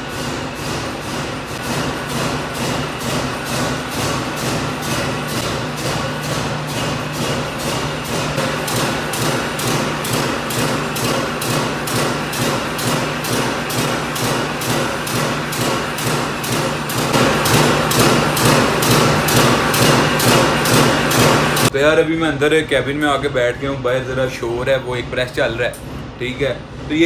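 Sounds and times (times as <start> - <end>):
power press impacts: 0.0 - 21.7
machine hum: 0.0 - 27.0.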